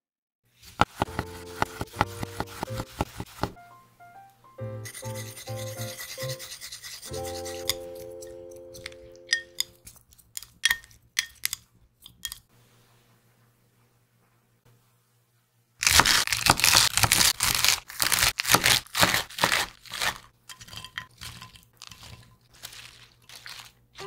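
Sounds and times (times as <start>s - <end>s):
knife cutting on wooden board: 0.6s - 3.6s, 4.9s - 11.6s
light keyboard music: 1.0s - 9.8s
utensil clinking in glass container: 4.9s - 12.4s, 20.5s - 23.8s.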